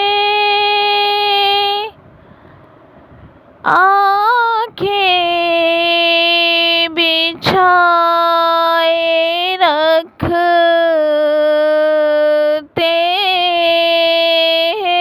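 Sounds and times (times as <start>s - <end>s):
solo voice singing unaccompanied: 0.0s - 2.0s, 3.6s - 15.0s.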